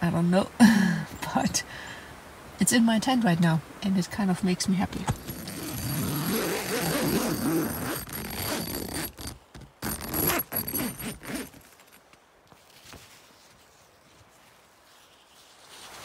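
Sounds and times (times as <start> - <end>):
tent zipper pulled open: 5.0 - 12.0, 14.9 - 16.0.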